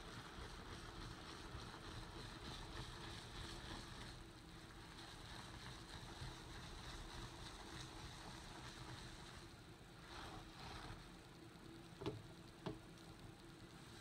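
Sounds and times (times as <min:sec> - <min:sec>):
gloved hands rubbing carpet: 0:01.2 - 0:11.2.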